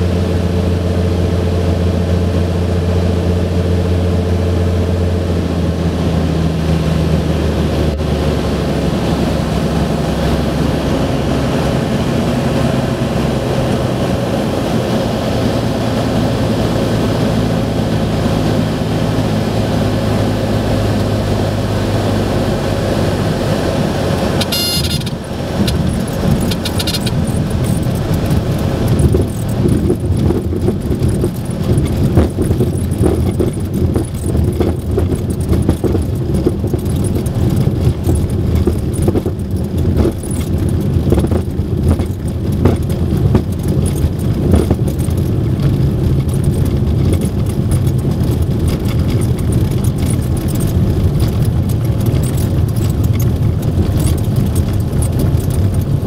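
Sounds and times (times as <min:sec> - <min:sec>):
propeller engine rumble: 0:00.0 - 0:56.0
airframe rattling and knocking: 0:24.2 - 0:56.0
brief high tone: 0:24.4 - 0:25.2.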